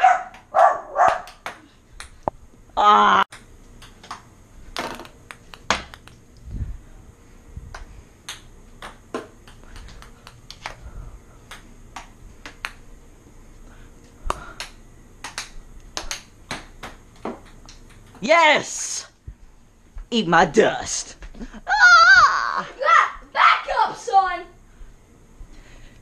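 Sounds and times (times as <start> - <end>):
ping-pong ball clicks: 8.2 - 10.7.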